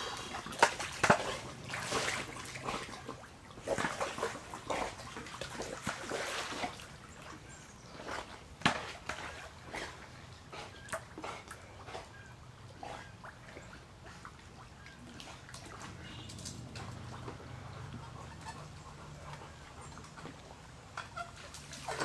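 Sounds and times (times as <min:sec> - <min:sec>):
pool water splashing: 0:00.0 - 0:22.0.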